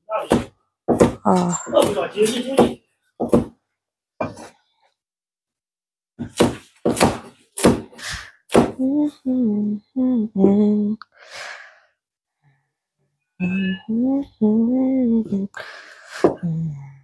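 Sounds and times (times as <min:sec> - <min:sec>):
person singing short syllables: 0:08.8 - 0:11.1.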